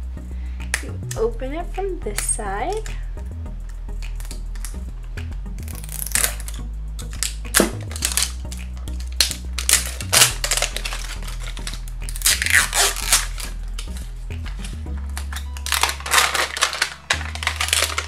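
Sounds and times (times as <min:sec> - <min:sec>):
soft background music: 0:00.0 - 0:18.0
plastic wrapping crinkling: 0:05.8 - 0:18.0.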